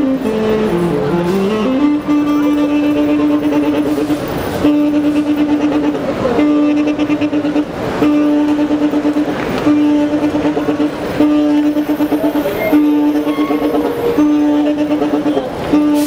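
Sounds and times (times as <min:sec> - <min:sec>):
saxophone long held note: 0:00.0 - 0:16.0.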